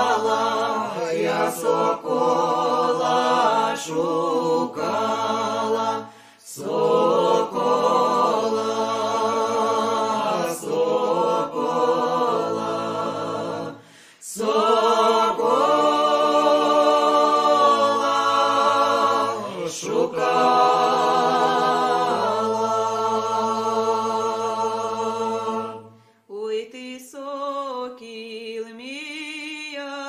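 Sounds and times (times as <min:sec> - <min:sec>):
a cappella ensemble singing: 0:00.0 - 0:30.0.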